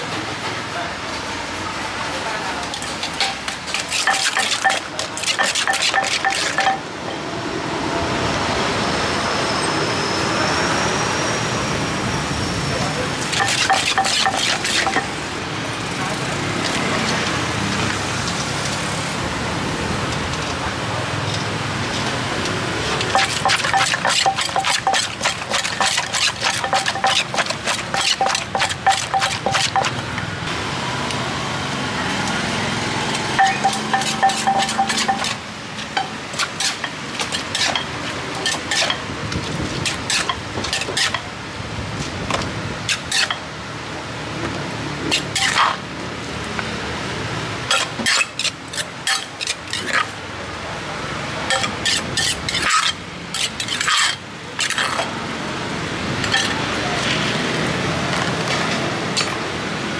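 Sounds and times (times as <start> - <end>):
metal spoon clinking and scraping: 3.0 - 6.8, 13.3 - 15.2, 23.0 - 30.0, 33.4 - 35.4, 36.0 - 39.0, 42.9 - 43.4, 45.1 - 45.8, 47.7 - 50.2, 51.5 - 55.1, 56.3 - 56.6
wooden pestle knocking in mortar: 23.2 - 29.9.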